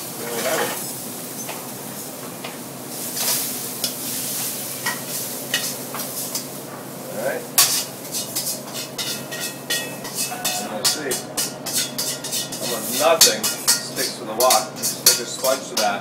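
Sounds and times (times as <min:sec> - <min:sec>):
food sizzling in a wok: 0:00.0 - 0:16.0
metal tongs clinking on wok: 0:07.6 - 0:16.0
metal knocks and scrapes: 0:09.1 - 0:12.8
loud sharp metal clank: 0:09.7 - 0:12.6.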